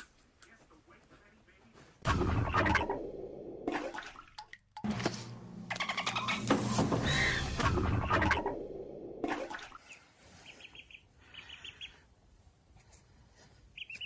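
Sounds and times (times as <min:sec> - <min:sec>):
duckling peeping: 0:09.8 - 0:12.1, 0:13.7 - 0:14.0.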